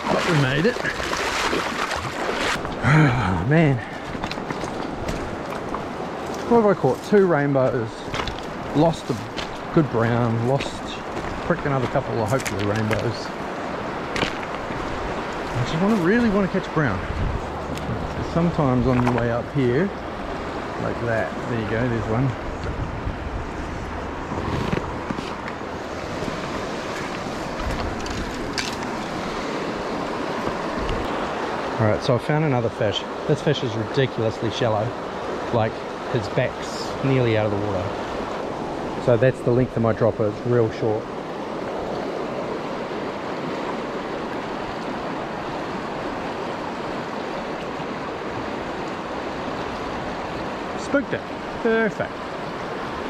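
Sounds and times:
river rushing over stones: 0:00.0 - 0:53.0
wind buffeting microphone: 0:07.9 - 0:31.5
footsteps on loose stones: 0:08.0 - 0:09.6, 0:10.5 - 0:13.1, 0:26.2 - 0:29.1.

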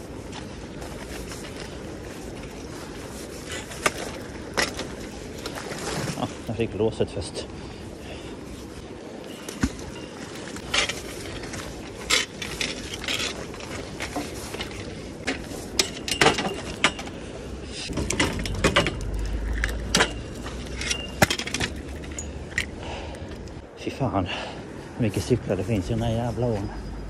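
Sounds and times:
metallic clinks and rattles: 0:17.9 - 0:22.8.

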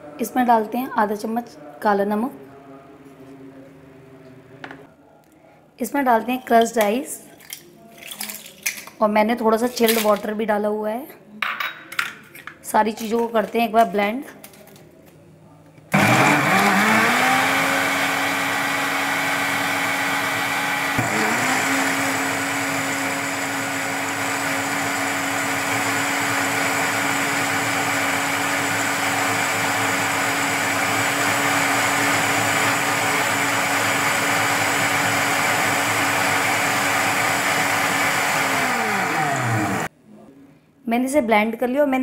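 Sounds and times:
blender motor blending ice: 0:16.0 - 0:39.9.

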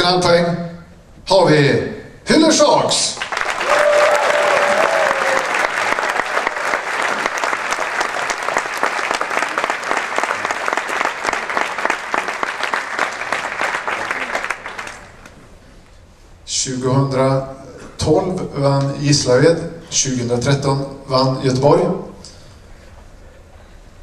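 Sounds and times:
audience applauding: 0:03.2 - 0:15.4.

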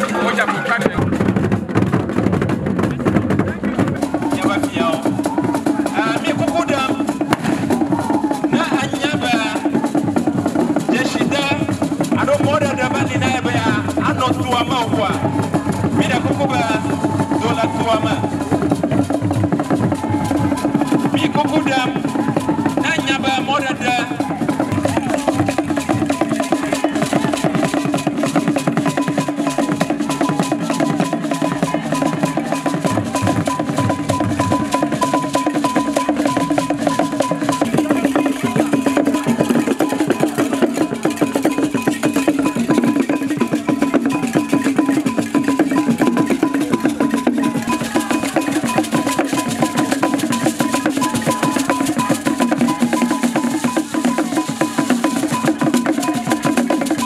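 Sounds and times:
drum ensemble fast rhythm: 0:00.0 - 0:57.0.

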